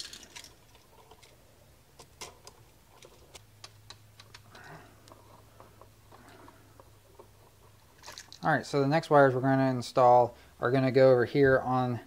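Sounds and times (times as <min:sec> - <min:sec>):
outlet and wires handling noises: 0:00.0 - 0:08.5.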